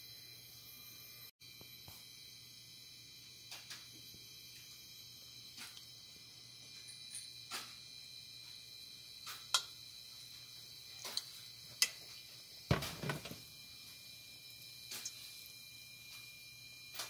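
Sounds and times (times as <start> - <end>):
faint high whine: 0.0 - 17.0
hot oil popping and crackling: 9.1 - 17.0
knocks: 12.7 - 13.4.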